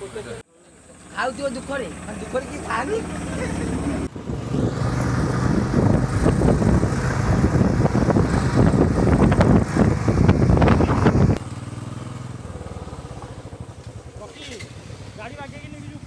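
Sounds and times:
motorcycle engine hum: 0.0 - 16.0
gusty wind rush: 4.0 - 11.4.

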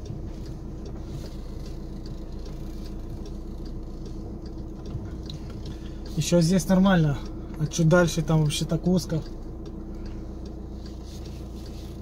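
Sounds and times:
faint light ticks: 0.0 - 12.0
van engine humming: 0.0 - 12.0.

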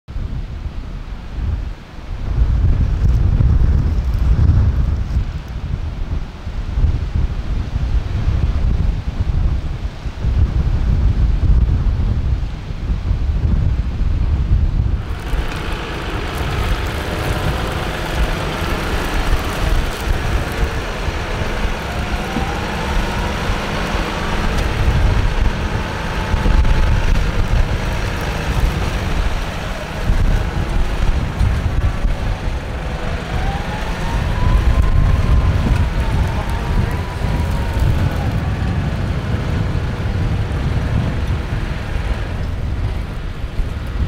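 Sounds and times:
wind buffeting microphone: 0.1 - 44.0
tractor engine under load: 14.8 - 44.0.

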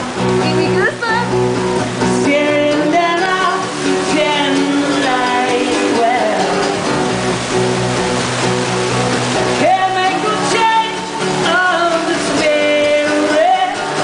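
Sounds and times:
acoustic guitar strumming: 0.0 - 14.0
man singing into microphone: 2.2 - 6.8, 9.6 - 14.0.

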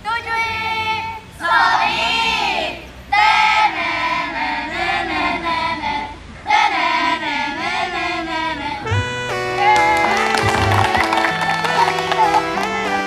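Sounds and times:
children singing in unison: 1.4 - 9.0.

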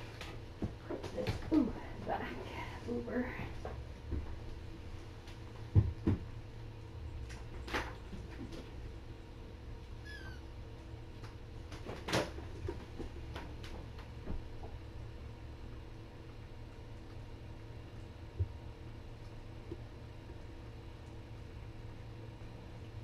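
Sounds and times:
steady low hum: 0.0 - 23.0
kitten mewing: 10.0 - 10.5.

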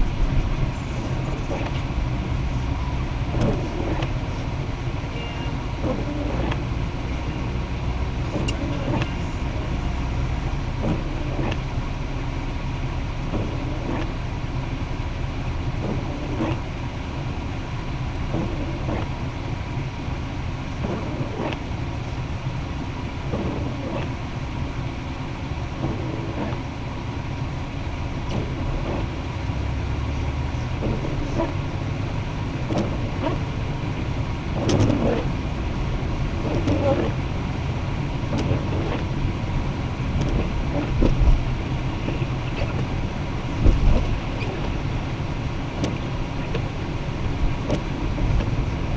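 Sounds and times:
car engine and road rumble: 0.0 - 48.9
windshield wipers knocking: 3.3 - 4.1, 13.3 - 14.1, 18.3 - 19.1, 30.7 - 31.7, 32.6 - 33.9, 34.6 - 35.3, 36.4 - 37.2, 38.2 - 39.2, 40.0 - 44.8, 45.7 - 46.7, 47.4 - 48.8.

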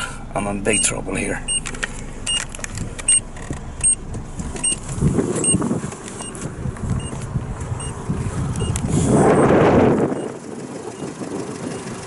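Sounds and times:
car engine running: 0.0 - 12.0
dashboard tick-beep: 0.7 - 1.7.

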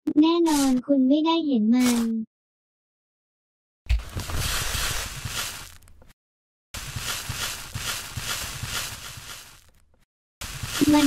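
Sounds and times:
shredded paper rustling: 4.0 - 5.9, 6.8 - 9.8, 10.4 - 11.0.

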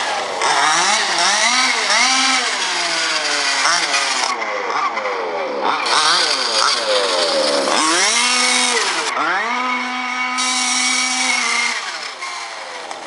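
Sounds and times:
two-stroke engine revving: 0.0 - 13.0.

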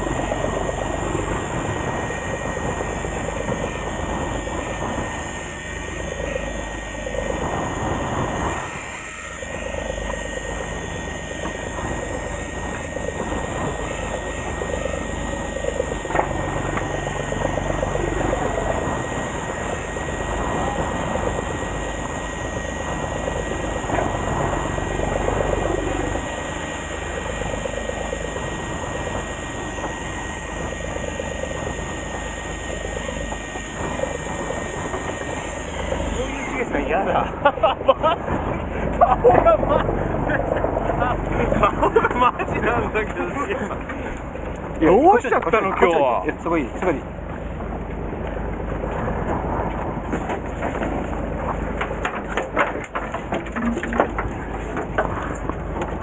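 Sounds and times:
wind on microphone: 0.0 - 41.9
boat engine drone: 0.0 - 56.0.

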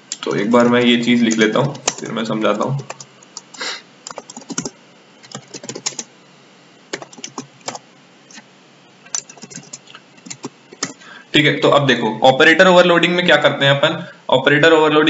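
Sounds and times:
computer keyboard typing: 0.8 - 6.1, 6.9 - 8.4, 9.0 - 11.0.

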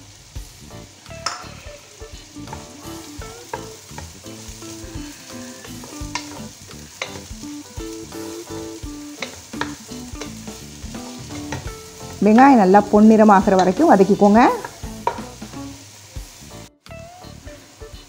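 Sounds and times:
onions sizzling in hot oil: 0.0 - 18.0
spatula scraping and knocking pan: 2.4 - 12.6, 13.4 - 15.5.

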